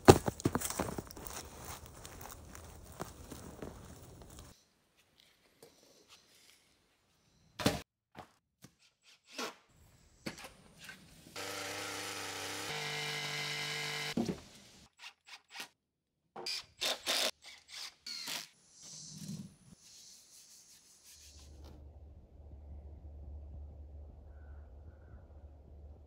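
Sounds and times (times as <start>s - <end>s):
power drill running: 11.4s - 14.2s.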